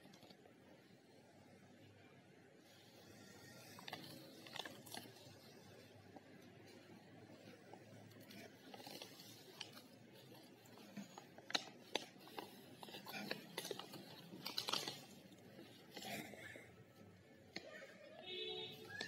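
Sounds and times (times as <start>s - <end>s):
paper pages rustling: 3.6s - 6.8s, 7.4s - 16.6s.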